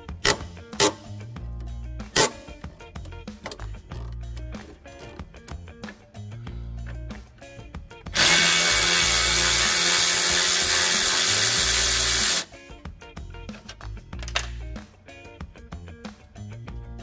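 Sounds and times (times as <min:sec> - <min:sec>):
background music with steady beat: 0:00.0 - 0:17.0
loud machine-like whirring: 0:08.1 - 0:12.4.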